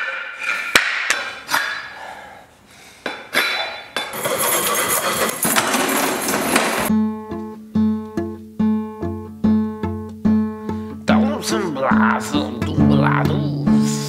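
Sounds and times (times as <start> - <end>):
rasping clatter: 4.1 - 6.9.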